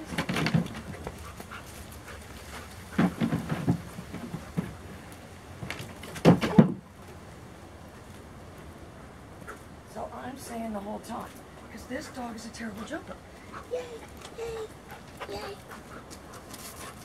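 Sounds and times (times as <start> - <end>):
puppy thumps on plastic platform: 3.0 - 4.8.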